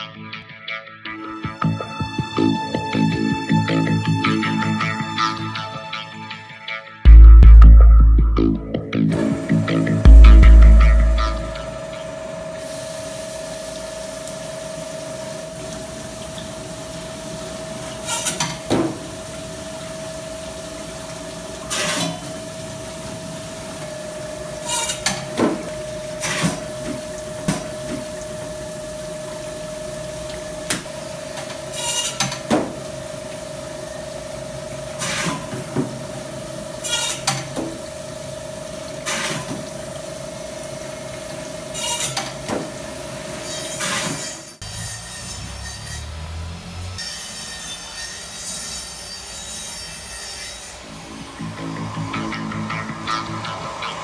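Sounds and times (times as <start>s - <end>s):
filleting machine humming: 9.1s - 18.1s
water running: 9.2s - 43.5s.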